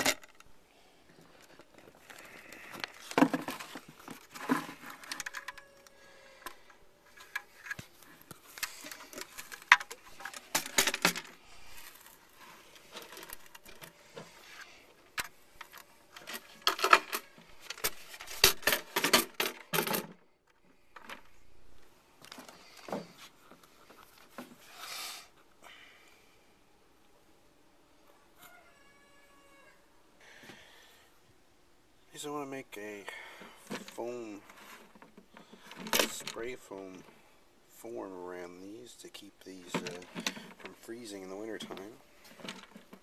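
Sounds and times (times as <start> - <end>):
clatter of hard objects: 0.0 - 0.5, 1.3 - 5.8, 6.4 - 14.4, 15.2 - 21.4, 33.6 - 36.4, 39.6 - 40.8, 41.6 - 43.0.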